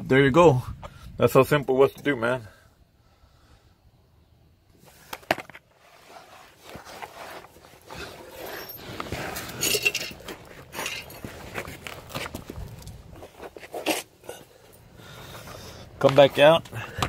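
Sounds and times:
rustling and scraping: 0:04.7 - 0:16.8.

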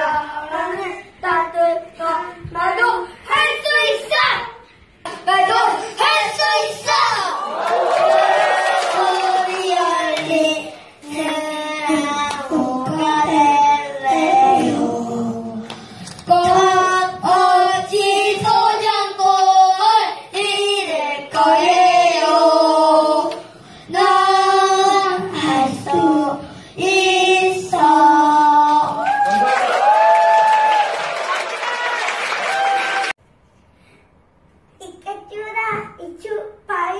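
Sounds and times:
boys singing into microphones: 0:08.9 - 0:29.0.

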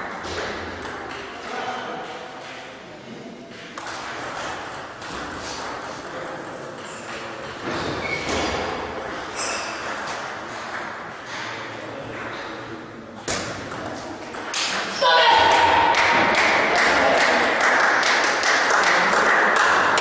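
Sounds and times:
table tennis balls clicking: 0:03.5 - 0:08.0.

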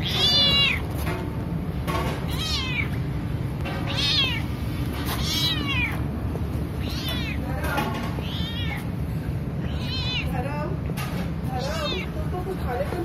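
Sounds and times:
cat meowing: 0:00.0 - 0:00.9, 0:02.2 - 0:03.0, 0:03.8 - 0:06.1, 0:06.8 - 0:09.0, 0:09.6 - 0:10.5, 0:11.6 - 0:12.2.

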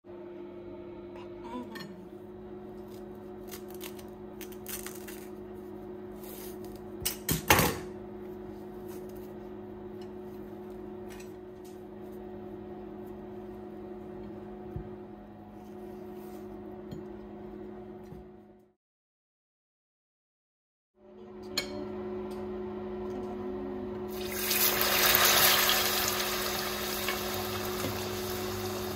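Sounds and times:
bananas being peeled: 0:02.8 - 0:05.6.

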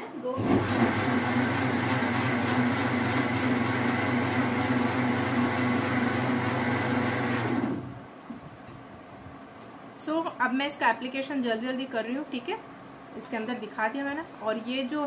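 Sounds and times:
electric mixer grinder running: 0:00.4 - 0:08.0.

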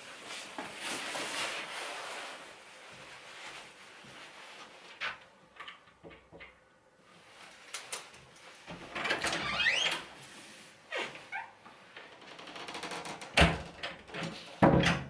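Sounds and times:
clothing rustle: 0:00.0 - 0:05.4, 0:07.0 - 0:08.8.

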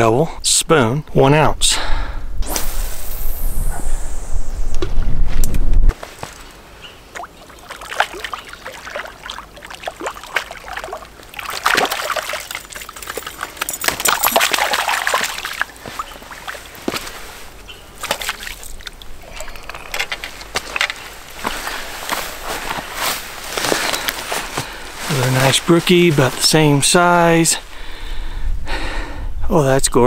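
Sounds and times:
fish thrashing and splashing: 0:07.1 - 0:24.6.

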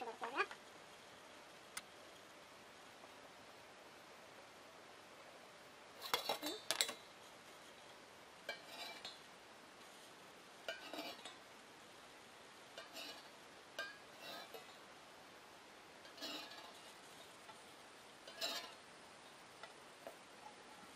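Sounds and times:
metal tools scratching steel bowl: 0:08.5 - 0:09.2, 0:10.7 - 0:11.4, 0:12.8 - 0:14.8, 0:16.0 - 0:17.6, 0:18.2 - 0:18.8.

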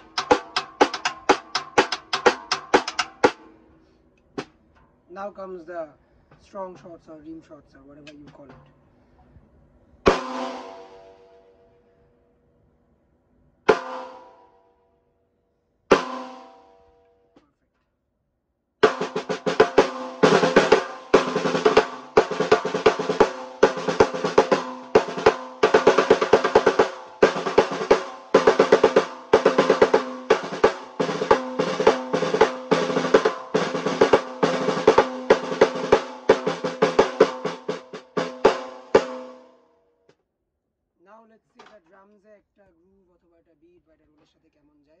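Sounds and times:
snare drum rim shots: 0:00.0 - 0:03.5, 0:18.8 - 0:39.5
snare drum rolls: 0:00.0 - 0:03.5, 0:10.1 - 0:11.3, 0:18.8 - 0:39.4.

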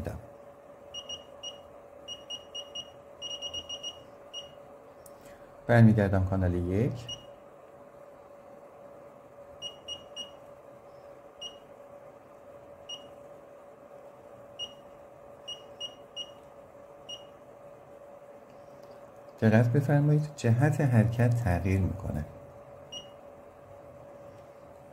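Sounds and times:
faint steady hum: 0:00.0 - 0:24.9.

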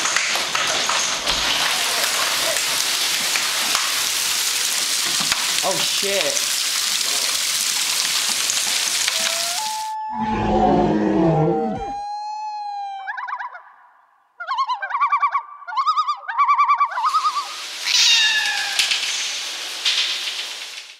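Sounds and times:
hail and rain rattling: 0:00.0 - 0:09.7, 0:17.1 - 0:20.9
high-pitched wavering cries: 0:09.1 - 0:13.8, 0:14.4 - 0:19.0.

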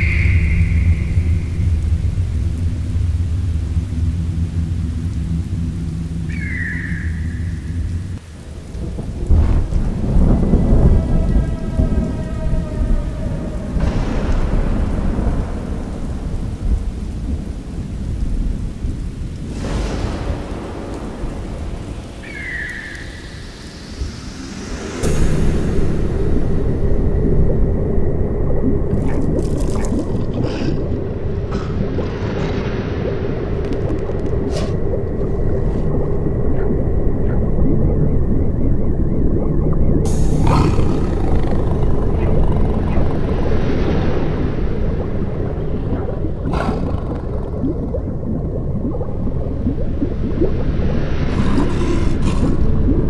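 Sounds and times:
deep rolling thunder: 0:00.0 - 0:50.5
deep rumbling drone: 0:00.0 - 0:53.0
steady rain: 0:00.0 - 0:53.0
rush of hiss: 0:22.2 - 0:26.4.

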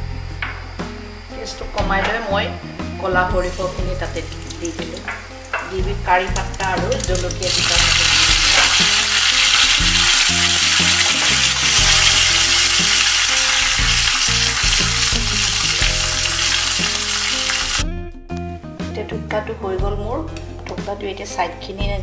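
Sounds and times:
spices sizzling in hot oil: 0:03.3 - 0:17.8.

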